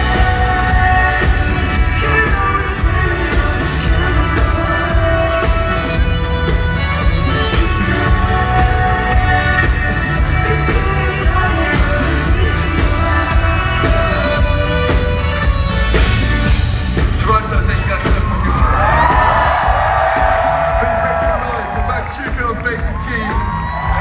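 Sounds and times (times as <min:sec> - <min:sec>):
man singing: 0:00.0 - 0:15.5
drums: 0:00.0 - 0:24.0.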